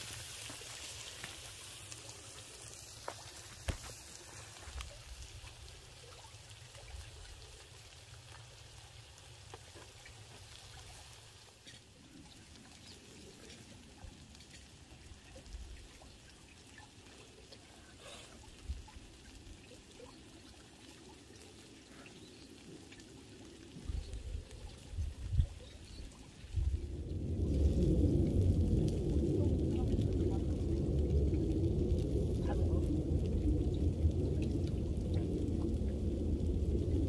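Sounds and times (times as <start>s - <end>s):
meat sizzling on hot stone: 0.0s - 15.8s
small pops and crackles: 0.0s - 37.0s.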